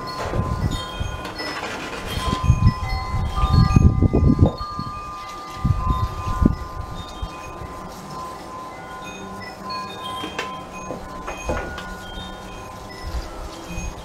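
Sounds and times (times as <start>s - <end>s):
low rumbling gusts: 0.0s - 8.0s
ringing chime tones: 0.0s - 14.0s.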